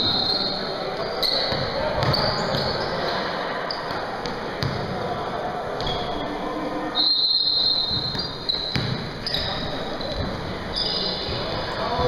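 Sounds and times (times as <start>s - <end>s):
sneakers squeaking on court: 0.0s - 4.9s, 5.8s - 6.3s, 7.5s - 12.0s
voices echoing in a hall: 0.0s - 12.0s
basketball bouncing: 1.5s - 2.8s, 4.2s - 4.9s, 7.9s - 10.4s.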